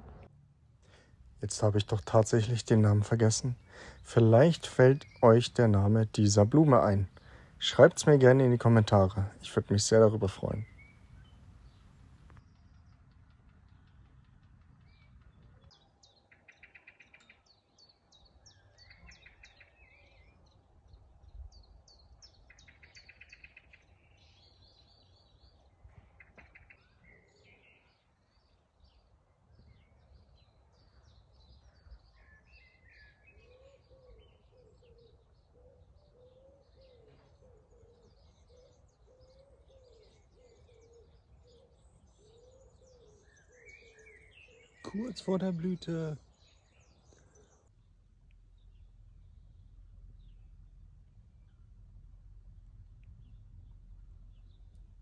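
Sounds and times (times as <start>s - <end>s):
low bird call: 0.9s - 12.9s, 30.8s - 55.0s
small birds chirping: 0.9s - 13.9s, 14.8s - 55.0s.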